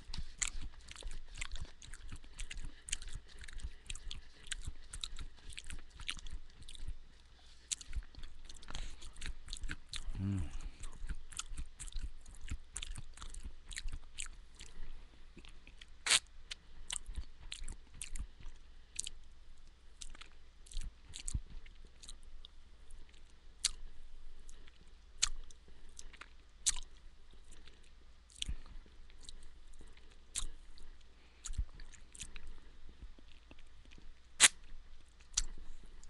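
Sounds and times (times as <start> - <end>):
person chewing crunchy granola: 0.0 - 7.0, 7.6 - 16.2.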